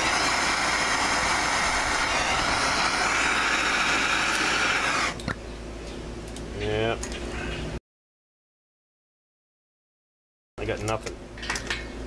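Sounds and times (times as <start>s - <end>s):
gas torch hissing: 0.0s - 5.2s.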